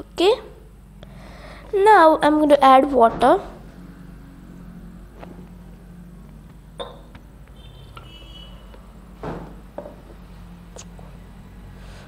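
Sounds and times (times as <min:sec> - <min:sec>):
glasses clinking: 0:06.8 - 0:07.1
glasses knocking on wooden table: 0:06.8 - 0:07.2, 0:09.8 - 0:10.0.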